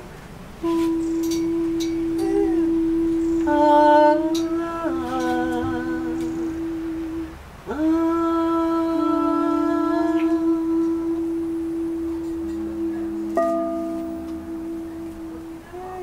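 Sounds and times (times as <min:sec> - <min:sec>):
synthesizer long held notes: 0:08.0 - 0:16.0.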